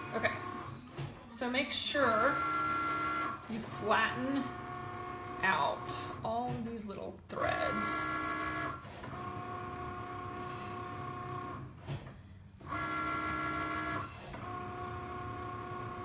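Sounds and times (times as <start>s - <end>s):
cutting machine motor tones: 2.0s - 3.5s, 7.4s - 11.7s, 12.6s - 16.0s.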